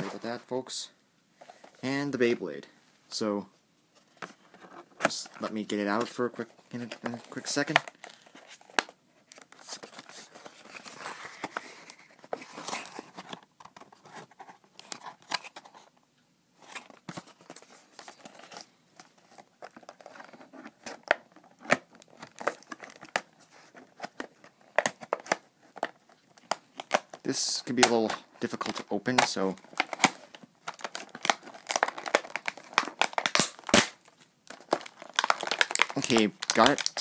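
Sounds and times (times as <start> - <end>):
plastic packaging crinkling: 16.7 - 37.0.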